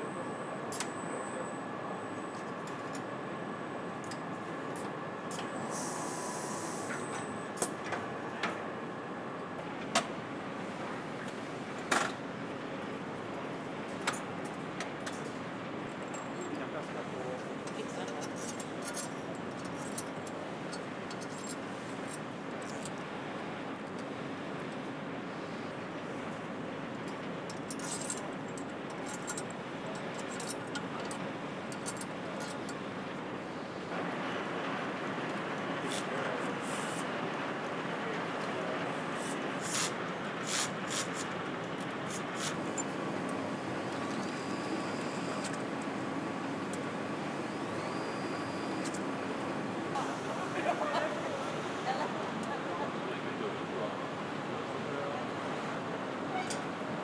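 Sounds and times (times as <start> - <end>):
machinery hum: 0.0 - 57.0
short hiss: 39.2 - 41.2.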